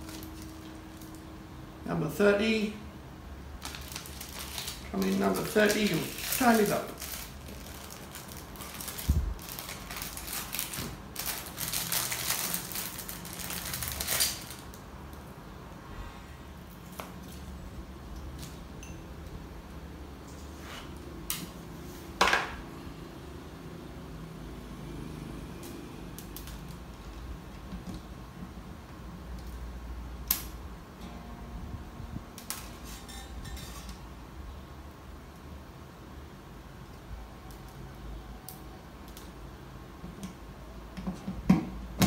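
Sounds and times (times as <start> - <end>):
paper packet rustling: 0.0 - 1.2, 3.6 - 14.8.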